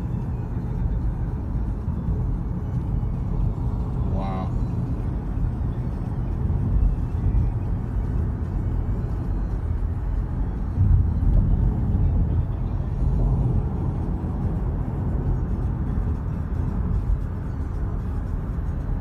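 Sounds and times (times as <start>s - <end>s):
car interior road rumble: 0.0s - 19.0s.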